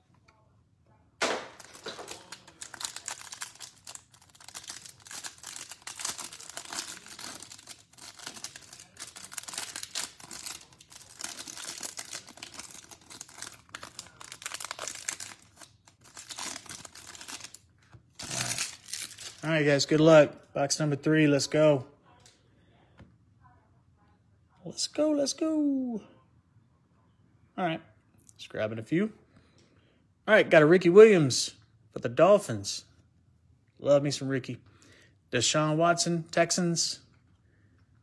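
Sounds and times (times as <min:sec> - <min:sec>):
plastic wrapper tearing and crinkling: 0:01.2 - 0:19.6.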